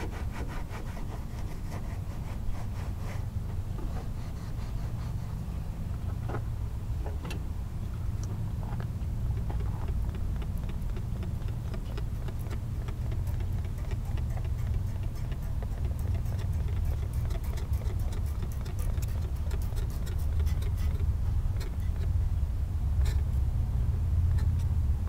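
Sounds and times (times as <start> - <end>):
light rapid clicks: 8.2 - 22.1.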